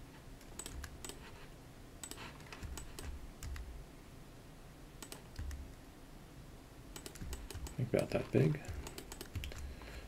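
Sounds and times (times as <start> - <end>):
keyboard keystroke clicks: 0.4 - 1.2, 2.0 - 3.7, 5.0 - 5.6, 7.0 - 9.7.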